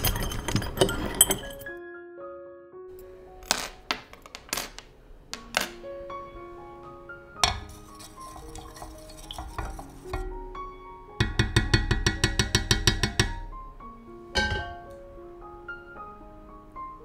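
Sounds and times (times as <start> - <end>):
background music: 0.0 - 17.0
stick stirring glaze in glass jug: 7.4 - 10.4, 11.2 - 13.4
stick tapping against glass: 7.4 - 10.4, 11.2 - 13.4.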